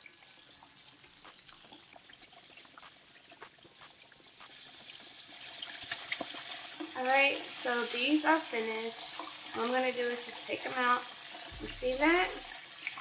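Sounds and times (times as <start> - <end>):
oil sizzling with pops: 0.0 - 13.0.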